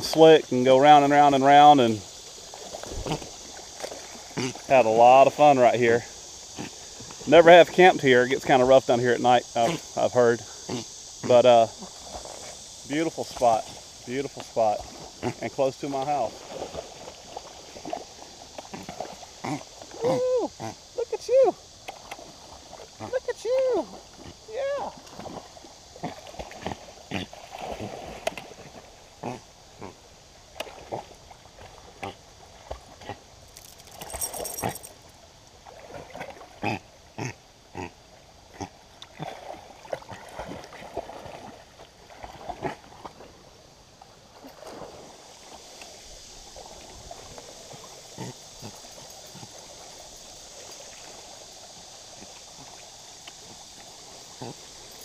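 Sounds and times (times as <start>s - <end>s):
stream flowing over rock: 0.0s - 10.4s, 11.0s - 29.2s, 30.2s - 37.0s, 38.3s - 55.0s
dogs splashing in water: 16.0s - 20.2s, 24.9s - 29.0s, 39.1s - 43.4s.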